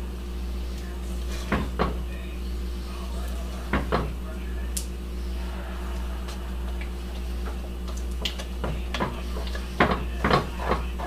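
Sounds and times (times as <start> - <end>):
steady low hum: 0.0 - 11.0
wooden spoon stirring chocolate: 6.0 - 11.0.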